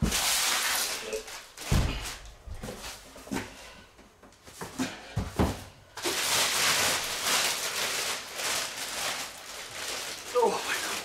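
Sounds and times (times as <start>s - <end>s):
plastic bag crinkling and rustling: 5.9s - 11.0s.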